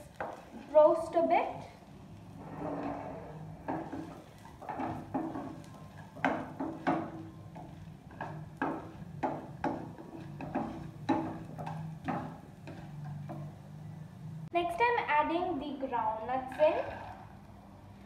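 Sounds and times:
spatula scraping frying pan: 0.0s - 13.6s.

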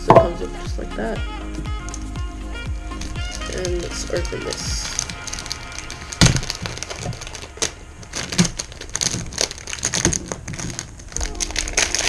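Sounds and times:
plastic packaging tearing: 1.8s - 12.0s
plastic sharp crack: 2.9s - 12.0s.

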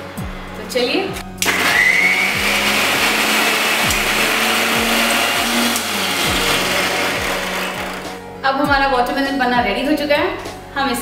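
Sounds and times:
electric mixer grinder blending: 1.4s - 8.2s.

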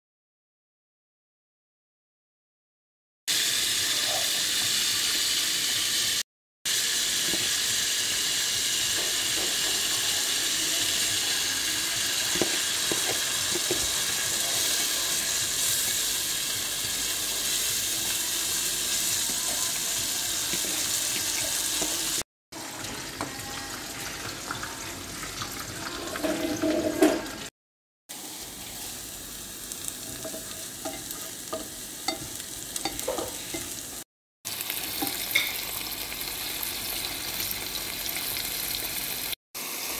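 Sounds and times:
onions frying in a pan: 3.3s - 27.4s, 28.1s - 39.9s
rice sizzling in a pot: 3.3s - 27.5s, 28.1s - 39.9s
spatula scraping and tapping pan: 12.3s - 13.9s, 30.1s - 33.8s.

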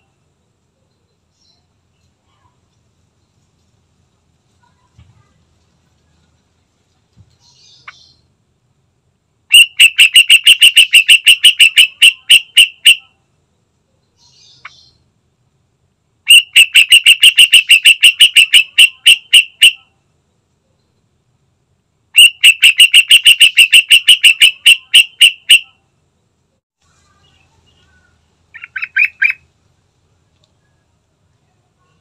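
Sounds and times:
bird chattering: 9.5s - 13.1s, 16.3s - 19.8s, 22.2s - 25.7s, 27.8s - 29.5s.

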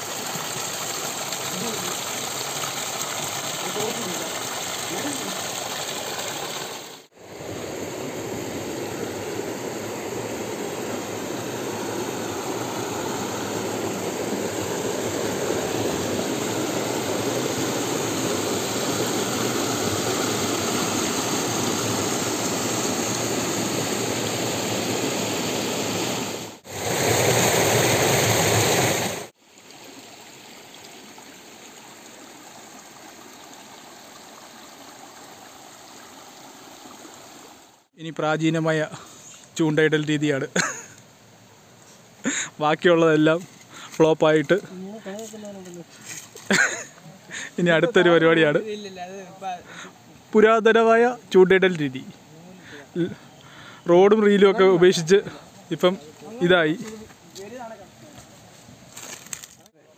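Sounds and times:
water rushing over rocks: 0.0s - 37.8s.

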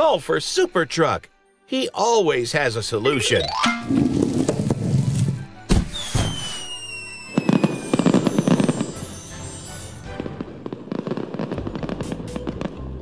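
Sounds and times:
background music: 0.0s - 13.0s
firework crackling pops: 3.9s - 13.0s
whistle falling in pitch: 5.7s - 8.8s.

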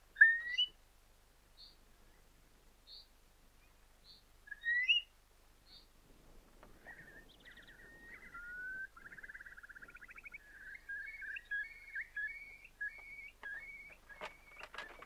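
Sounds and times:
bird calling: 4.1s - 5.1s, 6.6s - 15.0s.

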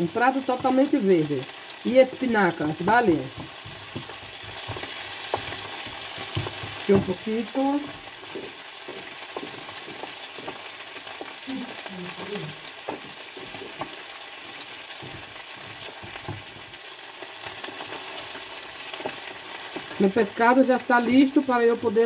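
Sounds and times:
fish frying in a pan: 0.0s - 22.0s.

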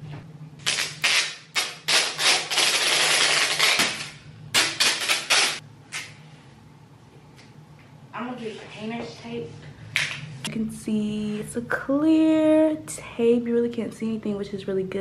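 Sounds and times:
tape ripping off roll: 0.6s - 5.6s.

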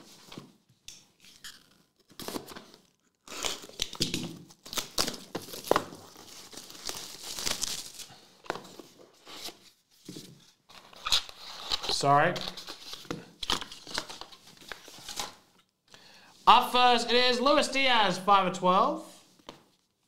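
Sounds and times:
plastic shrink wrap crinkling: 2.8s - 8.5s.

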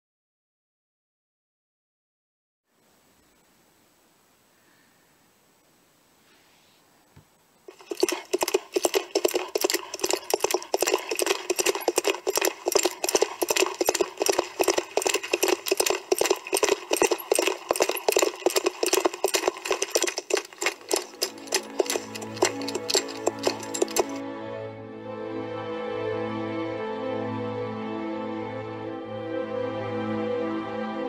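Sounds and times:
rapid clattering clicks: 7.7s - 24.2s.

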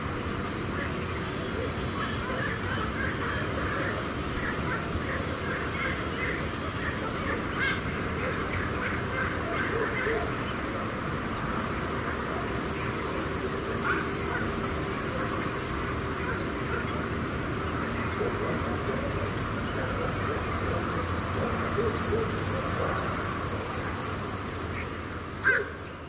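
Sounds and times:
crickets chirping: 2.2s - 7.7s, 10.8s - 25.6s.

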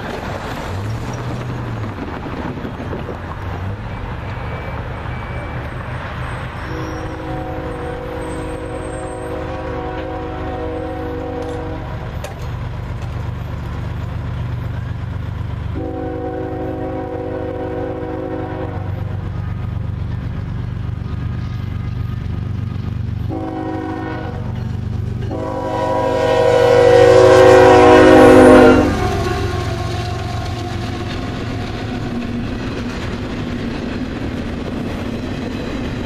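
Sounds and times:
train passing with heavy rumble: 0.0s - 36.0s
locomotive air horn blasts: 6.6s - 12.0s, 15.8s - 19.0s, 23.3s - 24.6s, 25.3s - 31.4s.

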